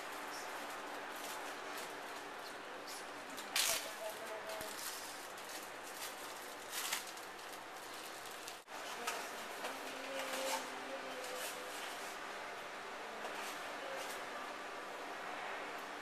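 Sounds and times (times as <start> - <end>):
plastic bag rustling: 0.0 - 12.2.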